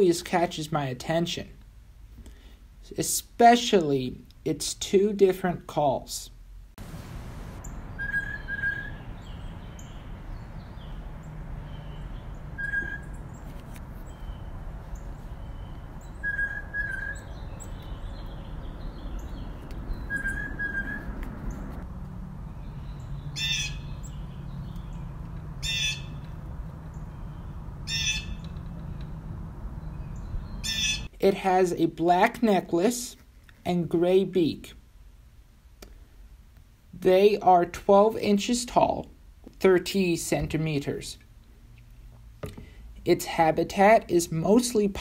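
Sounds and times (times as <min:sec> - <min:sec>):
blue jay whistled call: 0:07.6 - 0:11.0, 0:11.7 - 0:13.4, 0:15.2 - 0:21.1, 0:22.7 - 0:26.2, 0:27.0 - 0:28.5, 0:29.8 - 0:31.1
blue jay harsh scream: 0:07.9 - 0:10.0, 0:11.7 - 0:13.2, 0:15.6 - 0:17.8, 0:20.0 - 0:21.0, 0:23.3 - 0:24.6, 0:25.6 - 0:26.2, 0:27.4 - 0:28.4, 0:30.6 - 0:31.1.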